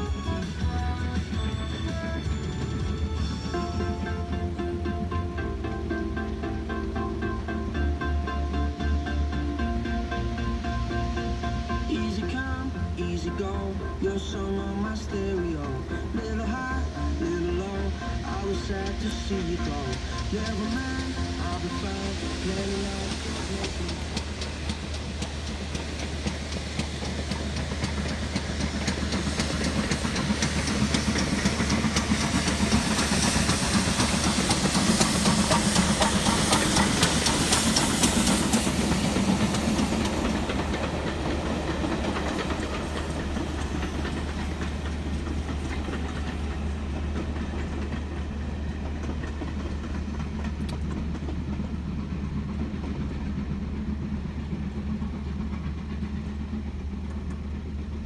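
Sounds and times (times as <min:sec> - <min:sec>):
train wheels clattering on rail: 0:00.0 - 0:58.0
steam hiss: 0:15.9 - 0:58.0.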